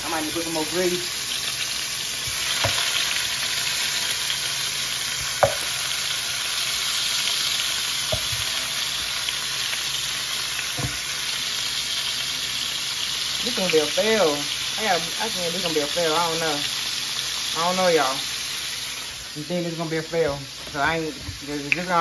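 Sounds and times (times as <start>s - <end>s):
chicken sizzling in hot grease: 0.0s - 22.0s
drumsticks knocking into pan: 5.4s - 5.7s.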